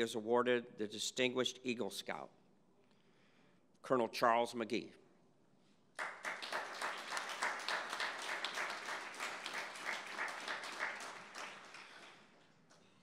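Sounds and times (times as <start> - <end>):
audience applauding: 6.0 - 12.4.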